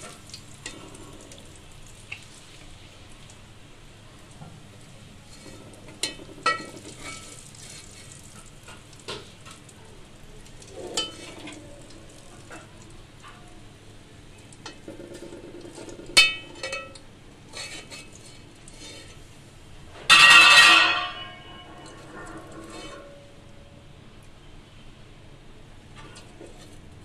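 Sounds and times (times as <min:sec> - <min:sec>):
faint oil sizzle: 0:00.0 - 0:19.9, 0:20.9 - 0:24.9
utensils clinking on pot and plate: 0:05.3 - 0:07.9, 0:10.8 - 0:11.6, 0:14.6 - 0:19.2, 0:20.1 - 0:23.3.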